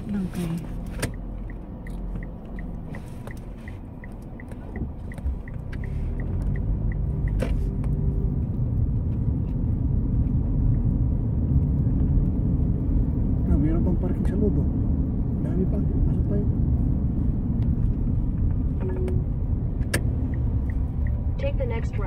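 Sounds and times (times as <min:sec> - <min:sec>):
turn-signal indicator ticking: 0:00.0 - 0:08.6, 0:18.3 - 0:22.0
car engine and road rumble: 0:00.0 - 0:22.0.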